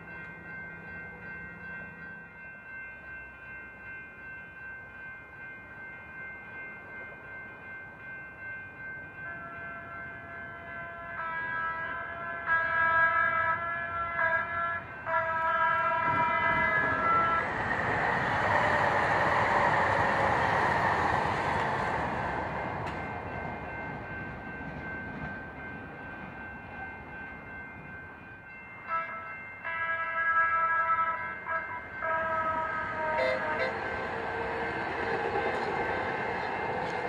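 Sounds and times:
passing train rush: 0:00.0 - 0:37.0
multi-tone train horn: 0:09.2 - 0:20.4, 0:28.8 - 0:37.0.

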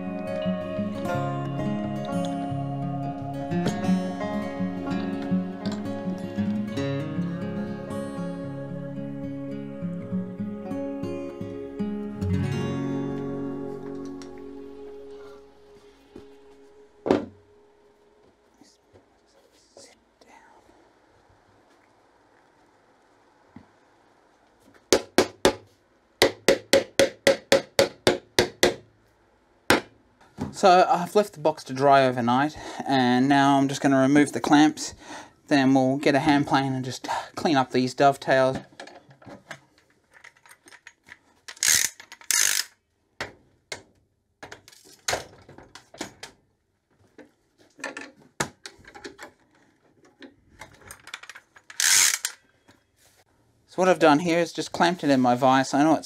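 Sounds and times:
mallet striking wooden box: 0:26.2 - 0:28.8
metal clamp clicks and rattles: 0:50.6 - 0:52.4
clamp scraping: 0:51.7 - 0:52.4.

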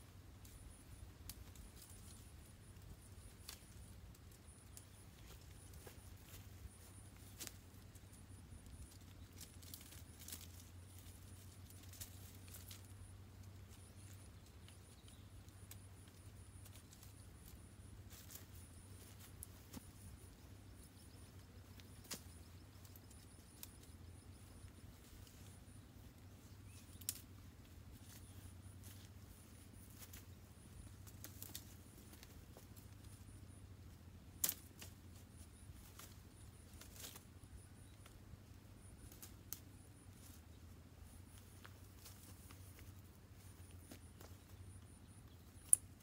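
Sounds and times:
faint high chirping: 0:00.0 - 0:46.0
branches snapping and rustling: 0:02.9 - 0:07.8, 0:08.6 - 0:33.4, 0:34.3 - 0:38.2, 0:38.8 - 0:40.4, 0:41.0 - 0:44.6.

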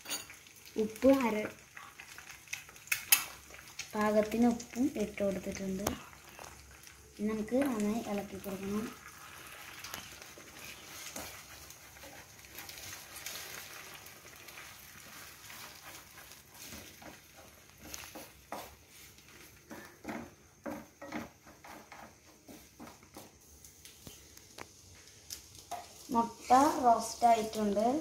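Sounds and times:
eggs sizzling in a frying pan: 0:00.0 - 0:28.0
wooden spatula tapping a pan: 0:16.6 - 0:23.4.

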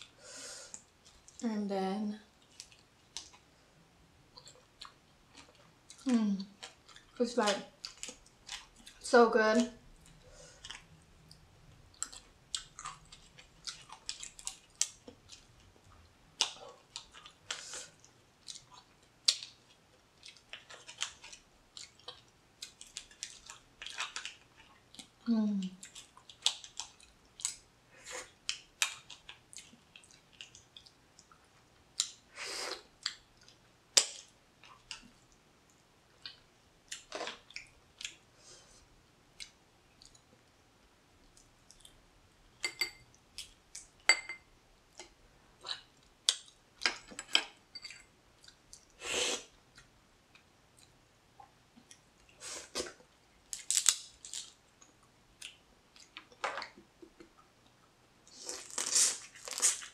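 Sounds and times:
person chewing and sucking: 0:58.3 - 0:59.9.

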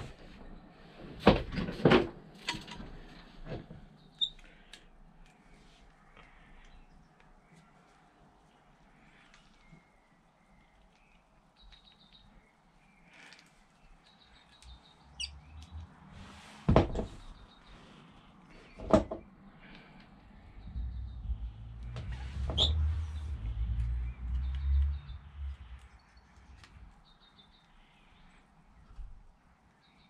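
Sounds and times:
birds chirping: 0:03.0 - 0:30.0
low rubbing rumble: 0:20.4 - 0:26.0.

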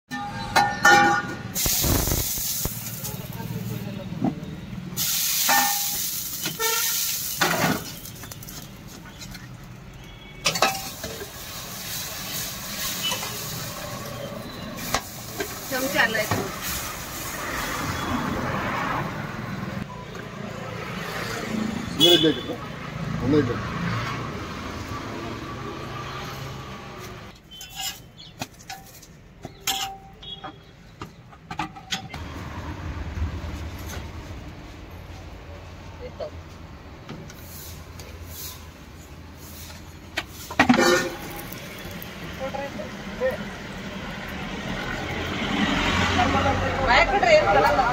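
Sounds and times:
street traffic: 0:00.0 - 0:47.9
batter sizzling on griddle: 0:01.6 - 0:03.7, 0:05.0 - 0:09.2, 0:10.6 - 0:17.8, 0:39.4 - 0:42.6
steel utensils clinking: 0:05.0 - 0:08.3, 0:10.4 - 0:14.0, 0:27.5 - 0:30.5
metal spatula scraping griddle: 0:27.5 - 0:29.0, 0:39.4 - 0:41.6.

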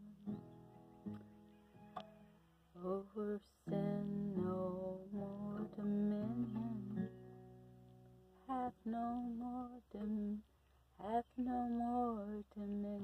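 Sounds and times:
acoustic guitar: 0:00.0 - 0:13.0
woman singing without words: 0:02.8 - 0:07.3, 0:08.4 - 0:13.0.

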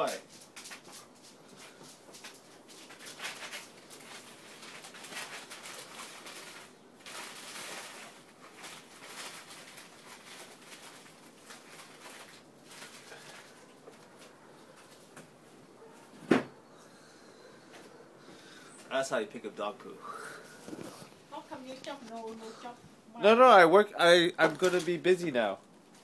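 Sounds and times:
rustling and scuffing: 0:20.5 - 0:22.8.

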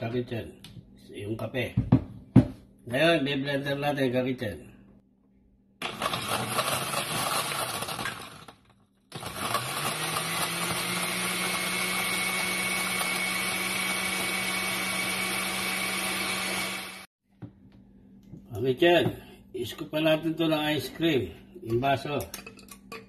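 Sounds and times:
blender motor running: 0:05.8 - 0:17.1.

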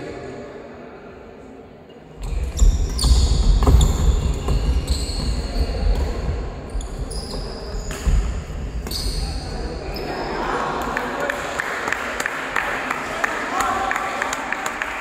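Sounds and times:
shoes squeaking on court: 0:02.2 - 0:10.1.

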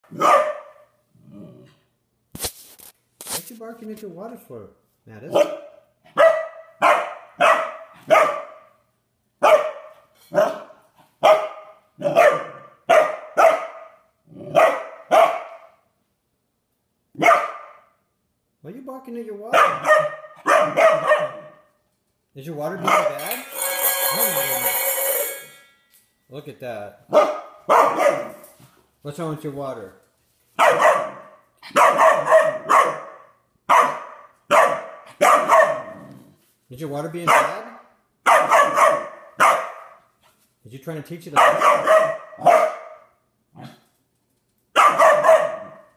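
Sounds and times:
puppy barking: 0:00.0 - 0:01.0, 0:05.3 - 0:08.8, 0:09.4 - 0:15.8, 0:17.2 - 0:17.9, 0:19.5 - 0:21.8, 0:22.8 - 0:23.2, 0:27.1 - 0:28.4, 0:30.6 - 0:36.2, 0:37.2 - 0:40.1, 0:41.4 - 0:43.8, 0:44.8 - 0:45.9.

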